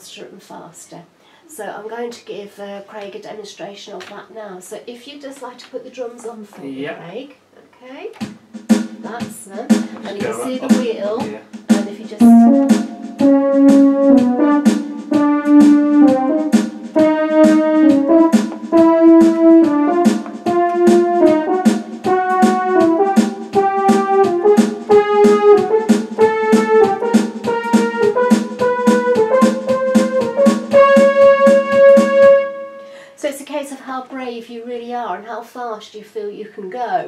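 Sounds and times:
drum machine rhythm: 8.2 - 33.0
electronic keyboard blues piece: 12.2 - 33.0.

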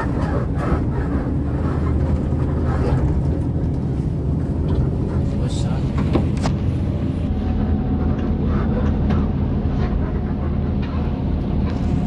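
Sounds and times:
bus engine droning: 0.0 - 12.0
road noise: 0.0 - 12.0.

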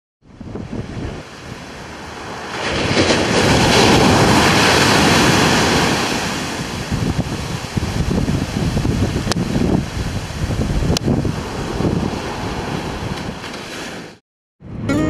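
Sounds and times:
wind buffeting microphone: 0.3 - 14.9
waves crashing on sand: 0.4 - 14.2.

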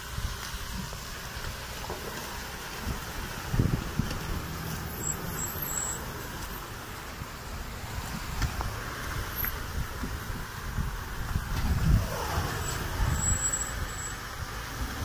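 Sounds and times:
truck engine rumbling: 0.0 - 15.0.

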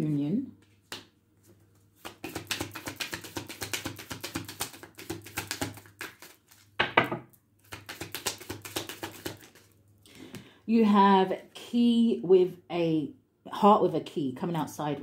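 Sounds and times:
cards being shuffled: 0.9 - 6.8, 7.6 - 9.8.

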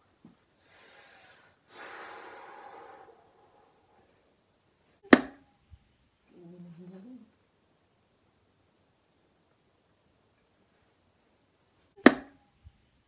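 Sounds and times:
soft breaths: 0.3 - 4.5
dart hitting dartboard: 5.1 - 5.4, 12.0 - 12.4.

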